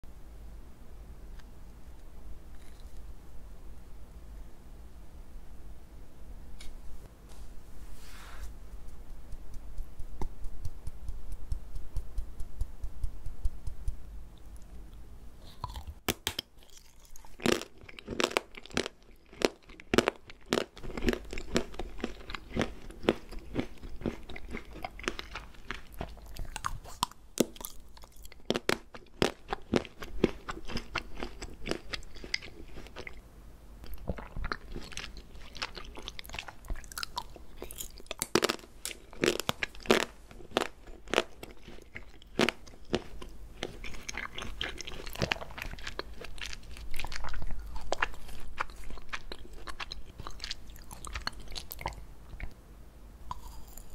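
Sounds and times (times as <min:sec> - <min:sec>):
crisp food crunching: 0:02.5 - 0:03.1, 0:15.4 - 0:33.2, 0:33.8 - 0:52.6, 0:53.3 - 0:53.9.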